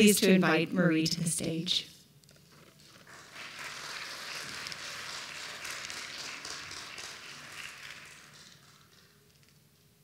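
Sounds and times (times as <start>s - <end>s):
audience applauding: 2.9s - 9.2s.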